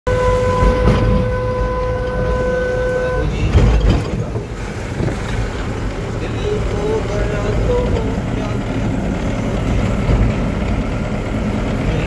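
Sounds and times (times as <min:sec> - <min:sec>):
vehicle horn: 0:00.1 - 0:03.6
engine rumble inside cab: 0:00.1 - 0:12.0.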